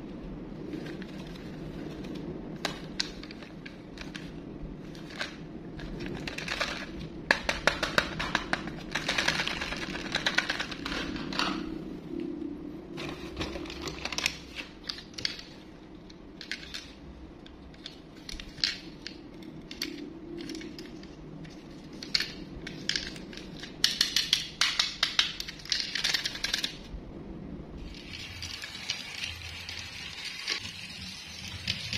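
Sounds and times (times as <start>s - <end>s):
low steady hum: 0.0s - 31.9s
plastic toys clattering in a box: 4.9s - 11.6s, 22.0s - 26.8s.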